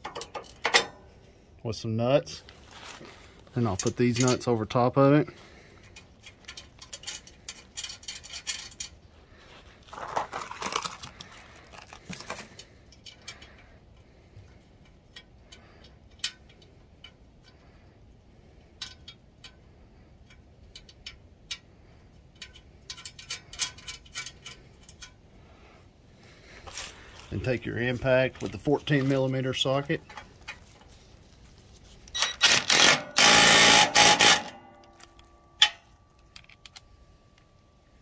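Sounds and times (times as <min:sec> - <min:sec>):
metal bolts clicking and rattling: 0:00.0 - 0:01.1, 0:03.6 - 0:04.9, 0:05.7 - 0:09.1, 0:11.9 - 0:17.8, 0:18.6 - 0:25.2, 0:31.9 - 0:37.6.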